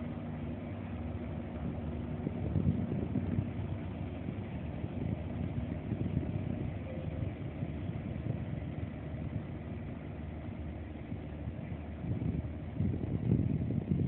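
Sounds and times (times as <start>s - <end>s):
boat engines rumbling: 0.0s - 14.0s.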